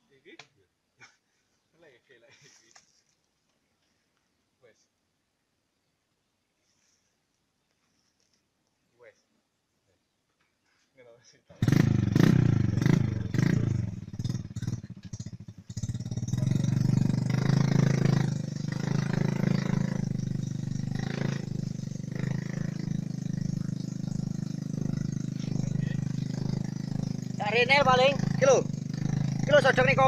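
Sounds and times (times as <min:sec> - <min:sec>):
clatter: 0:11.6 - 0:30.0
motorcycle engine running: 0:11.6 - 0:30.0.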